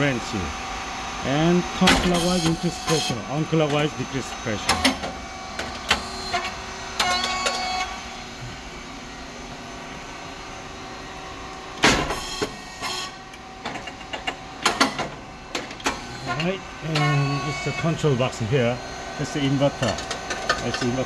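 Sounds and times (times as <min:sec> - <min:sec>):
hydraulic pump humming: 0:00.0 - 0:21.0.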